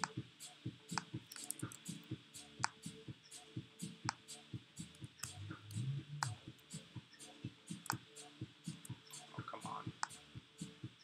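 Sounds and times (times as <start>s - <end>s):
mouse and keyboard clicking: 0.9s - 1.8s, 7.8s - 8.0s.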